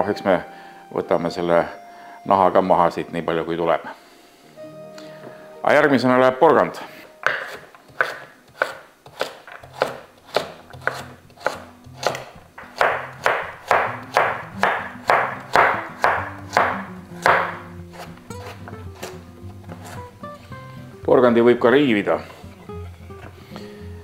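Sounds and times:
knife chopping on cutting board: 7.2s - 20.0s.

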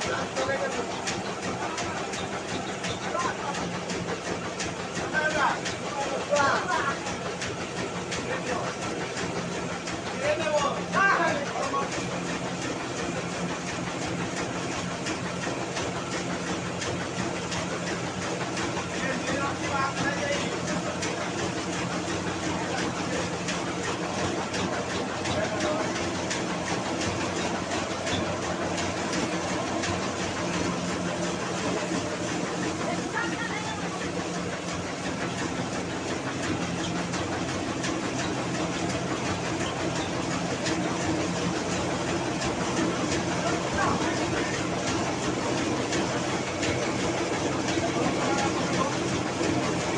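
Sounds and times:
rice mill motor hum: 0.0s - 49.9s.

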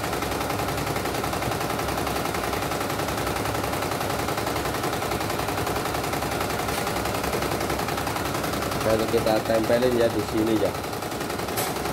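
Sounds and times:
embroidery machine clattering: 0.0s - 11.9s.

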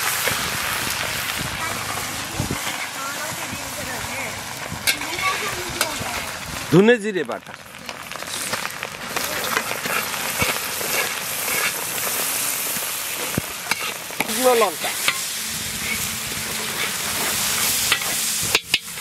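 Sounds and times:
spice paste sizzling in hot oil: 0.0s - 19.0s
spatula scraping a wok: 1.7s - 3.3s, 4.7s - 6.4s, 8.2s - 19.0s.

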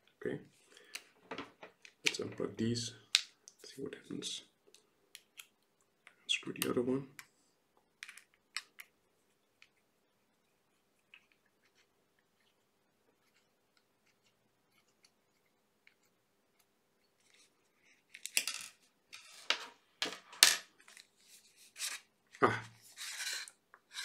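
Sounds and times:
plastic cover scraping and rubbing: 22.8s - 24.0s.

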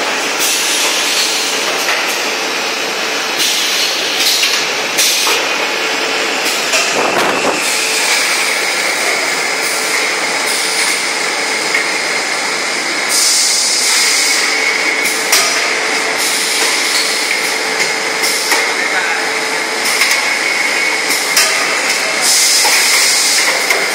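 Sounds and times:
machine whine: 0.0s - 23.9s
hiss: 13.1s - 14.5s, 22.2s - 23.8s.

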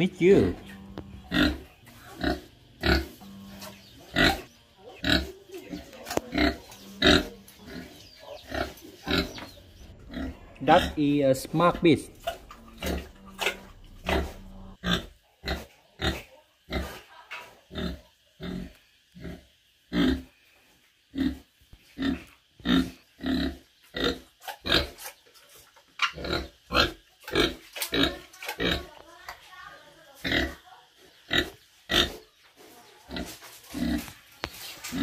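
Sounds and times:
pig grunting: 0.3s - 17.1s, 31.3s - 32.2s.

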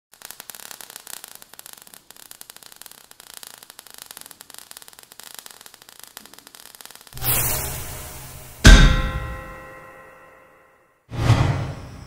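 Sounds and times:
steady hiss: 0.1s - 9.6s
crackling sparks: 0.1s - 10.1s.

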